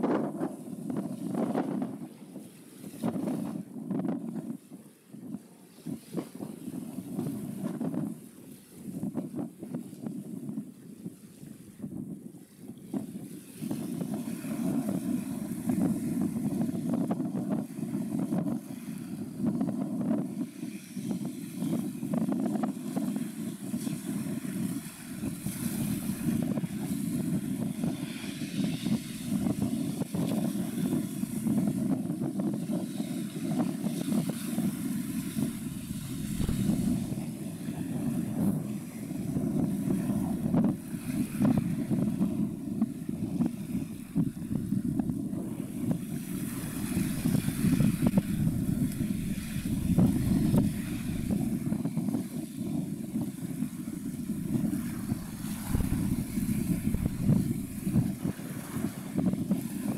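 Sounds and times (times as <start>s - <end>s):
tug engine rumble: 35.5s - 37.3s, 44.1s - 51.6s, 54.1s - 58.2s.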